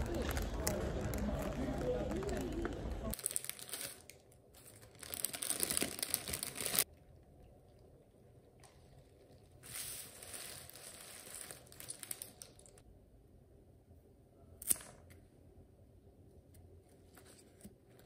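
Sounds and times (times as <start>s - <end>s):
cellophane wrapping crinkling: 0.0s - 6.9s, 9.0s - 12.8s.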